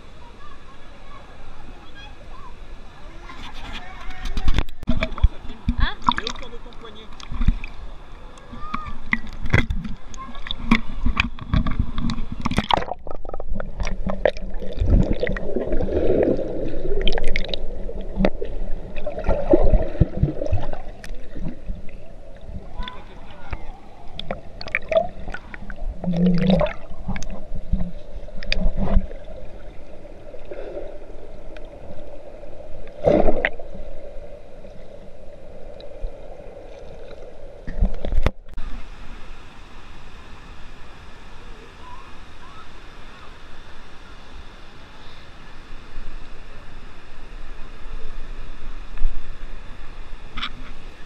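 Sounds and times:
muffled rush of water: 0.0s - 51.0s
water gurgling underwater: 8.6s - 38.6s.

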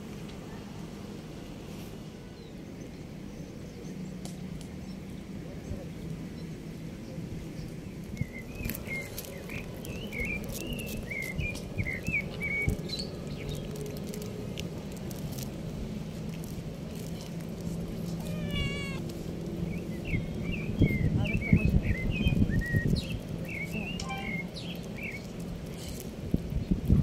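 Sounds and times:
kittens meowing: 18.1s - 19.1s.

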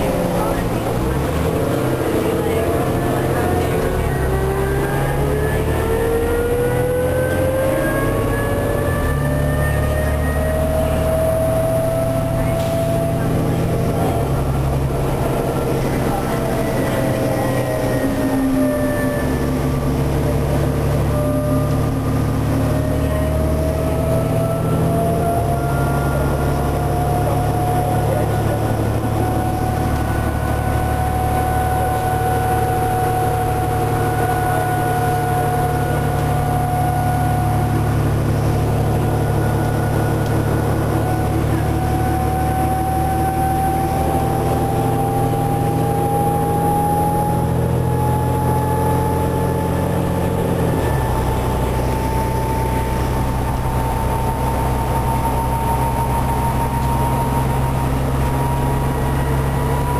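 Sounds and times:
bus diesel engine drone: 0.0s - 59.9s
high drivetrain whine: 0.0s - 59.9s.

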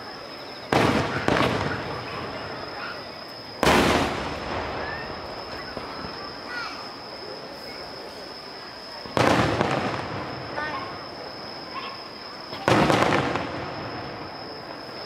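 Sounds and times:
firework shells booming: 0.7s - 2.8s, 3.6s - 6.5s, 9.0s - 11.1s, 12.5s - 14.8s.

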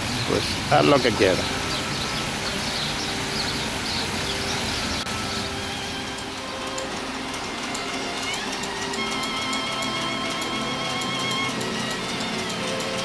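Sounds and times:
fountain water splashing: 0.0s - 6.6s
faint background music: 0.0s - 13.0s.

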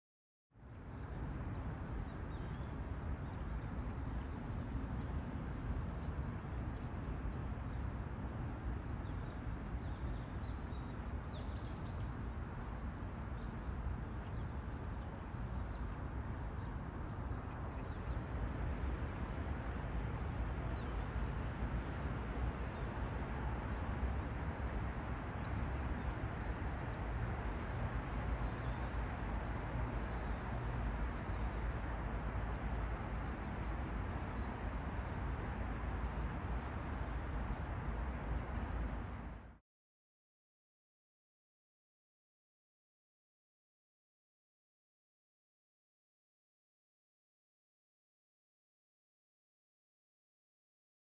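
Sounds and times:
small birds chirping: 0.7s - 39.6s.

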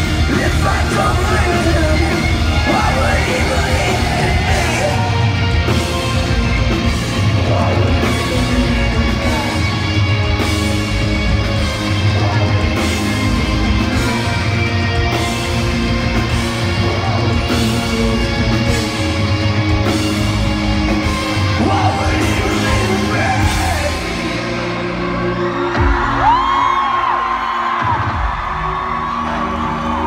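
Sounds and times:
shouted vocals: 0.0s - 5.5s
distorted guitars: 0.0s - 30.0s
heavy rock band playing live: 0.0s - 30.0s.

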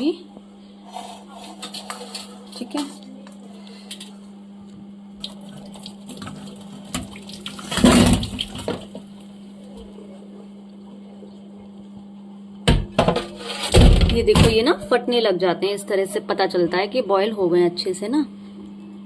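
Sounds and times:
water pouring into metal colander: 5.2s - 8.9s.

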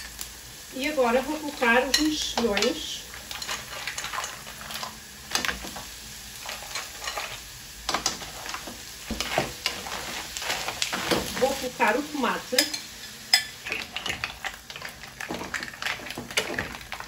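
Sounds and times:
frying pan sizzling: 0.0s - 17.0s
wooden spatula stirring: 8.0s - 11.6s, 13.6s - 17.0s.

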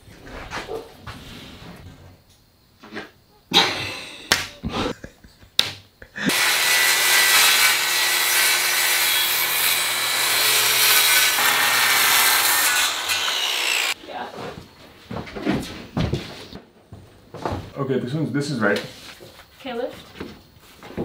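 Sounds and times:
circular saw cutting plywood: 6.2s - 14.0s.

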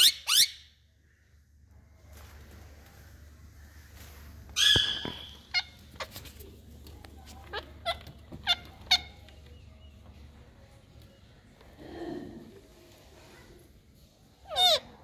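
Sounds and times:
parakeet harsh call: 4.6s - 5.8s, 14.5s - 14.9s
parakeet sharp chirps: 4.6s - 5.8s.

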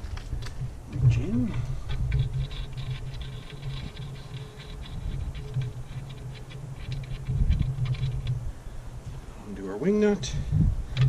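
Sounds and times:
metal clicks and scrapes: 0.0s - 8.4s
low steady rumble: 0.0s - 11.0s.

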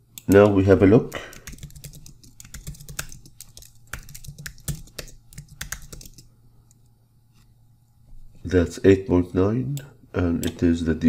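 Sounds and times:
keyboard typing: 1.2s - 6.3s.

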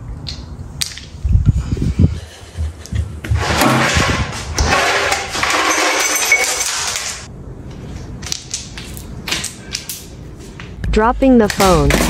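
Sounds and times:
ice cubes clattering on tiled floor: 4.6s - 7.3s.

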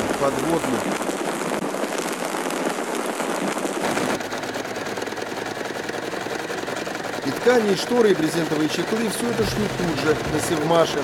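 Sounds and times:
sewing machine stitching: 3.8s - 11.0s.

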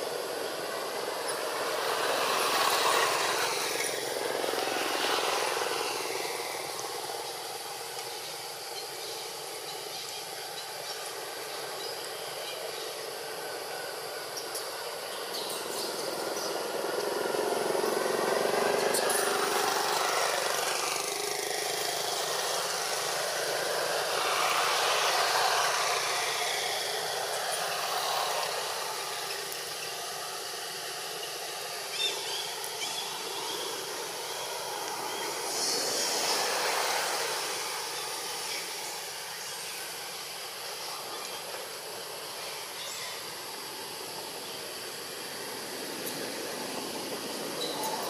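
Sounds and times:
outdoor rushing noise: 15.6s - 48.0s.

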